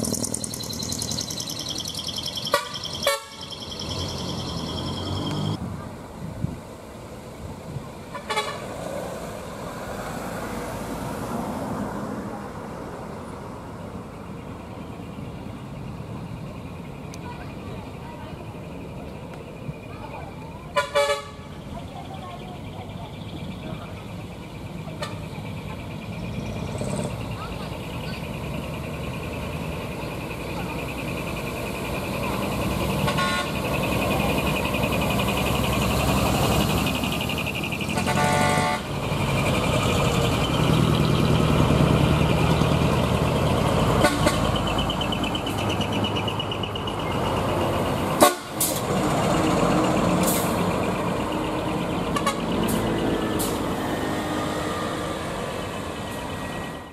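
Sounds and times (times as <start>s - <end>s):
loud rough diesel trucks passing: 0.0s - 56.9s
truck horn: 2.4s - 5.6s, 8.1s - 8.8s, 20.7s - 21.6s, 25.0s - 25.3s, 32.8s - 33.7s, 37.8s - 39.0s, 43.9s - 44.7s, 48.2s - 48.8s, 52.1s - 53.0s.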